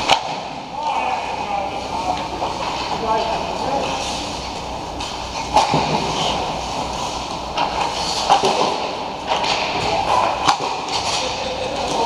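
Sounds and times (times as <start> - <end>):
hockey sticks and puck clacking: 0.0 - 1.1, 5.0 - 6.4, 7.0 - 12.0.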